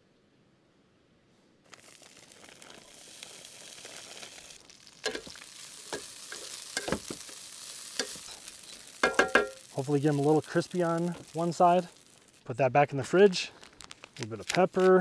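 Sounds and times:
food sizzling in oil: 0:01.7 - 0:12.5
utensil knocking on pan: 0:09.0 - 0:09.6.

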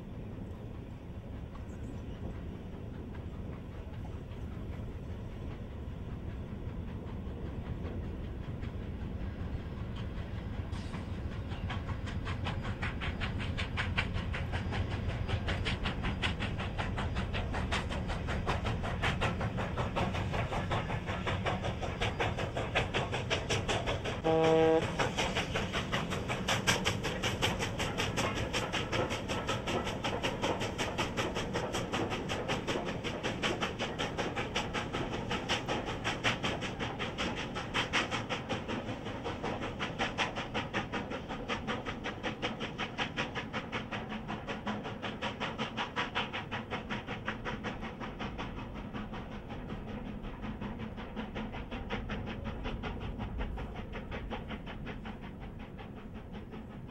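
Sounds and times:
steam locomotive exhaust beats: 0:00.0 - 0:56.9
steam whistle toot: 0:24.2 - 0:25.0.

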